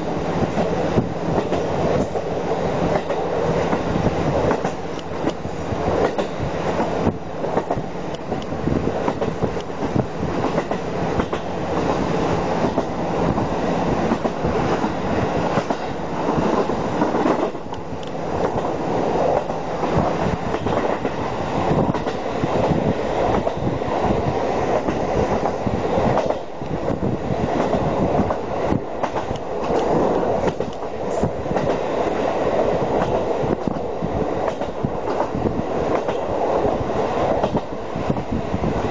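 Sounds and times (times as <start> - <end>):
railcar engine and wheel noise: 0.0 - 38.9
wheels clacking over rail joints: 4.5 - 12.0.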